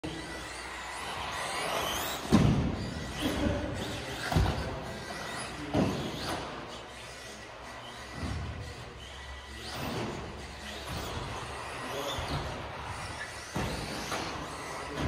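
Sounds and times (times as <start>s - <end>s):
toy car motor whining: 0.1s - 15.0s
toy car thudding: 9.7s - 14.8s.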